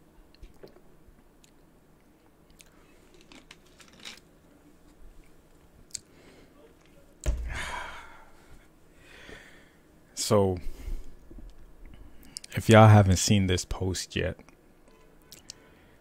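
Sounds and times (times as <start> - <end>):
mouth noises and clicks: 1.4 - 3.6, 5.9 - 6.1, 11.4 - 12.6, 15.3 - 15.6.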